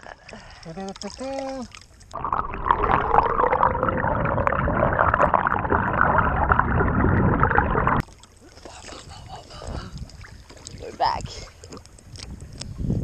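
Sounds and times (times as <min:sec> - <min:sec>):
muffled underwater rushing: 0:02.1 - 0:10.9.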